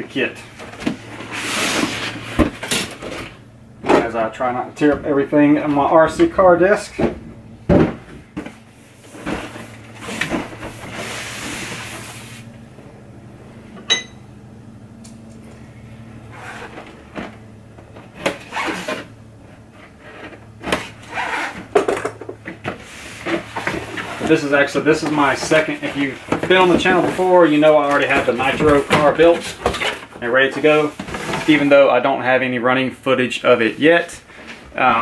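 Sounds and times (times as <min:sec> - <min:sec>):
cardboard sliding and rubbing: 0:00.9 - 0:03.3, 0:08.6 - 0:12.5, 0:22.8 - 0:30.0.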